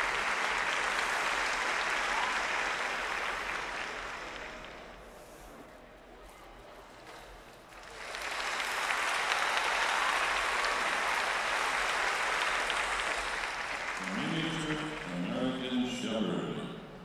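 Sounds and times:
audience applause: 0.0s - 5.1s, 7.7s - 15.9s
man speaking: 14.0s - 17.0s.

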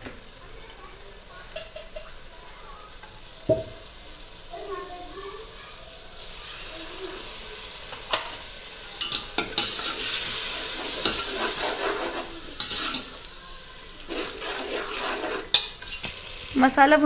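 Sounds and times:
food sizzling in hot oil: 0.0s - 17.0s
ladle scraping metal pot: 9.0s - 13.2s, 14.0s - 16.2s.

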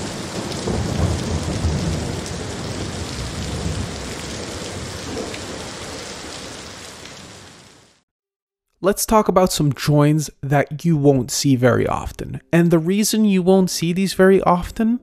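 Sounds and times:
rolling thunder: 0.0s - 6.6s
steady rain: 0.0s - 8.0s.

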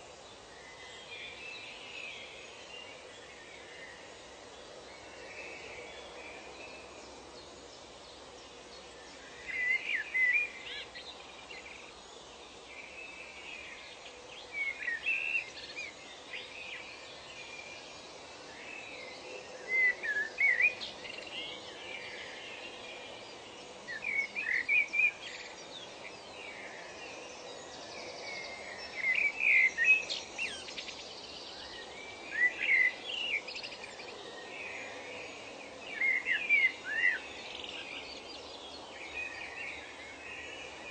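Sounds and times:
background hiss: 0.0s - 40.9s
songbird singing: 0.0s - 40.9s.

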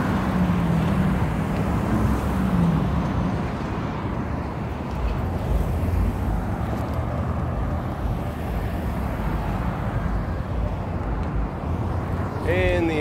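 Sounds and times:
road traffic rumble: 0.0s - 13.0s.

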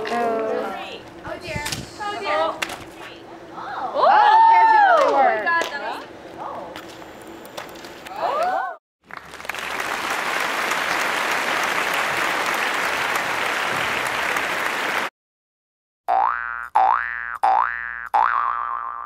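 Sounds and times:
people clapping: 7.6s - 15.1s
cartoon boing sound effect: 16.1s - 19.0s.

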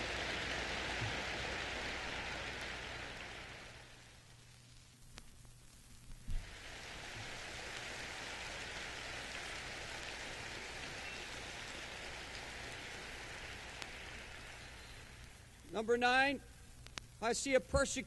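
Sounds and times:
audience applauding: 0.0s - 4.2s, 6.3s - 15.5s.

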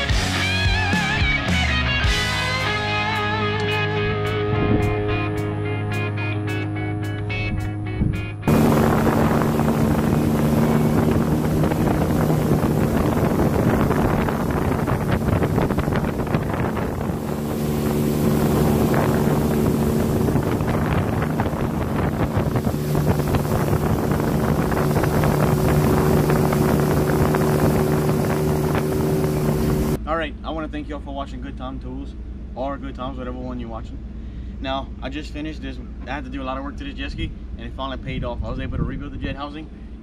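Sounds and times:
wind on microphone: 4.4s - 5.1s, 7.4s - 30.0s
personal watercraft engine running: 8.0s - 30.0s.

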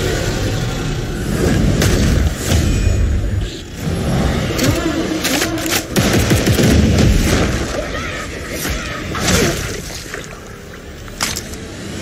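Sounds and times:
film trailer soundtrack: 0.0s - 12.0s.

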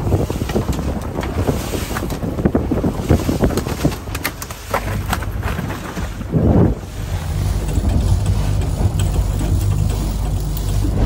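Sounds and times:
boat engine running: 0.0s - 11.0s
wind buffeting microphone: 0.0s - 11.0s.

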